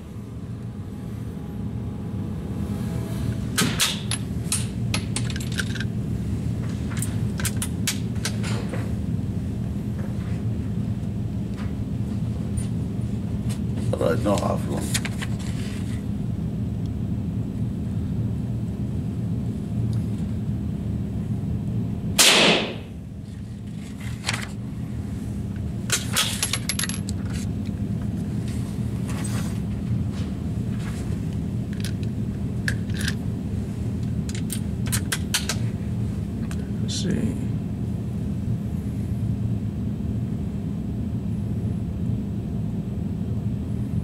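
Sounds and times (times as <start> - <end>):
steady low hum: 0.0 - 44.0
rifle shot: 22.2 - 22.9.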